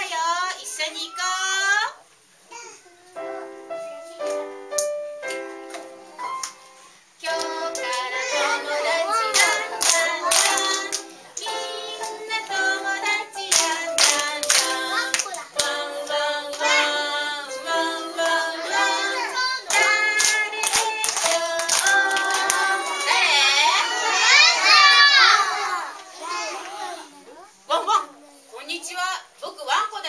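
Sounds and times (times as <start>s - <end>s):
backing music: 3.3s - 23.5s
hand clapping: 4.2s - 6.6s, 7.3s - 8.1s, 9.2s - 15.8s, 19.6s - 23.2s
woman singing: 7.2s - 22.9s.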